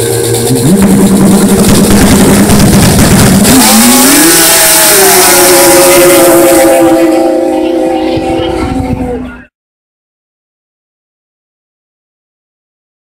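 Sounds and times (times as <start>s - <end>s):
snowmobiles passing with rising whine: 0.0s - 9.3s
snowmobile engines high-revving: 0.0s - 9.4s.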